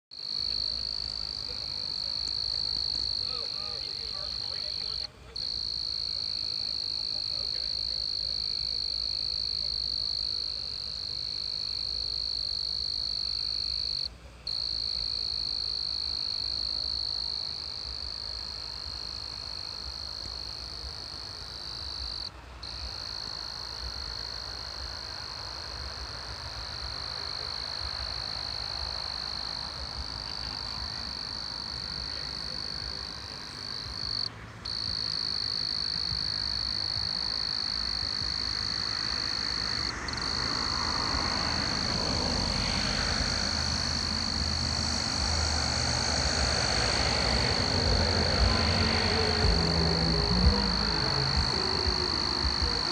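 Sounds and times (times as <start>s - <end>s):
low rumble: 40.2s - 52.9s.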